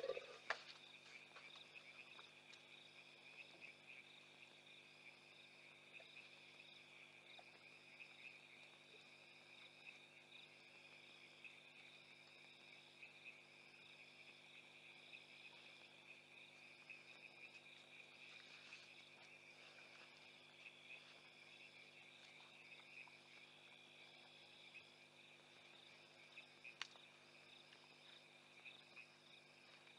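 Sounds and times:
insects trilling: 0.0s - 29.9s
pulsing insect call: 0.0s - 29.9s.

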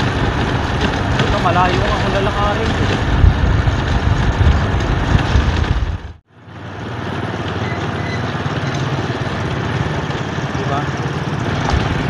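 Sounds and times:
wind buffeting microphone: 0.0s - 6.2s
motorcycle road noise: 0.0s - 12.0s.

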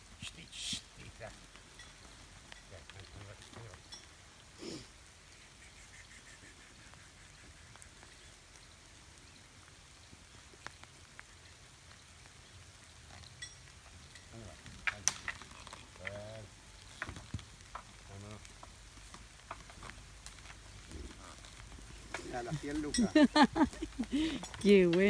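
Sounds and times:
faint steady hiss: 0.0s - 25.0s.

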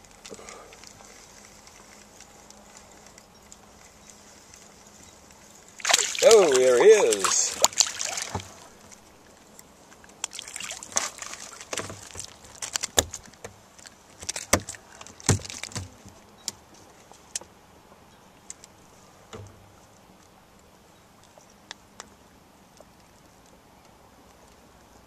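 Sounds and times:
water lapping against boat hull: 4.0s - 17.5s.

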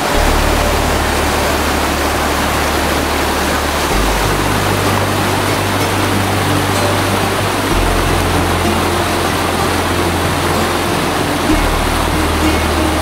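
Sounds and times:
stream splashing over rocks: 0.0s - 13.0s.

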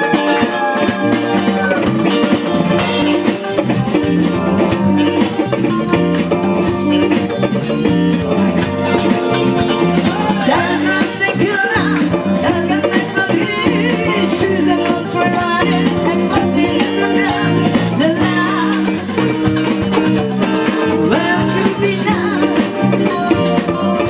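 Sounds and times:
bass: 0.0s - 24.0s
drum kit: 0.0s - 24.0s
electric guitar: 0.0s - 24.0s
woman singing lead: 9.7s - 24.0s.

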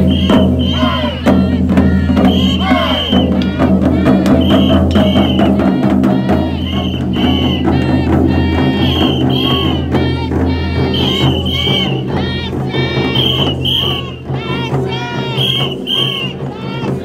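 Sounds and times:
parade music with drumming: 0.0s - 17.0s
voices shouting: 0.0s - 17.0s
short high notes: 2.1s - 9.9s.

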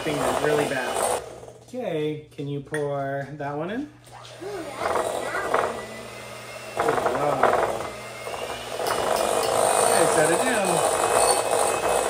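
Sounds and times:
electric hand mixer whirring: 0.0s - 1.6s, 4.1s - 12.0s.

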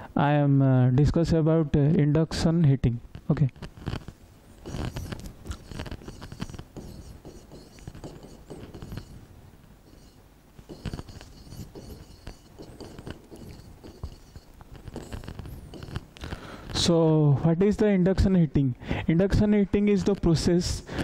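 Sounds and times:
stylus tapping and scraping on glass: 3.6s - 16.2s.

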